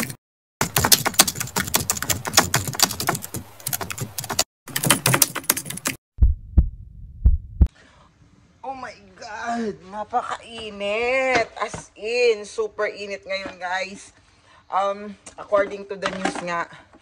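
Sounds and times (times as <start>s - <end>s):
keyboard typing clicks: 0.0s - 6.0s
heartbeat thumps: 6.2s - 7.7s.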